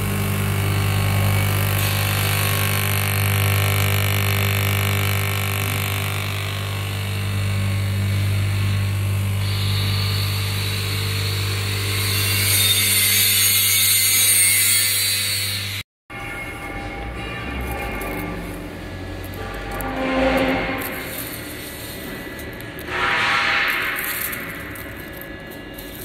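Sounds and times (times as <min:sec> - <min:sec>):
electric fan motor humming: 0:00.0 - 0:12.4, 0:18.1 - 0:26.0.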